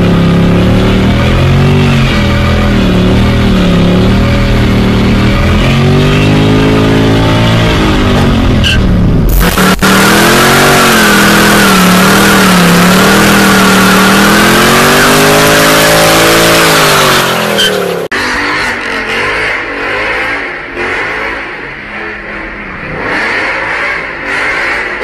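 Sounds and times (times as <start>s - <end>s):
car engine at high revs: 0.0s - 25.0s
tyres squealing and hissing: 15.4s - 18.0s.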